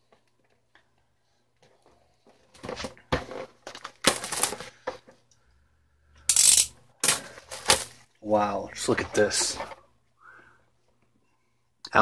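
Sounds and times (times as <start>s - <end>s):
packaging rustling and scraping: 2.2s - 5.2s, 7.0s - 8.1s, 8.8s - 9.9s.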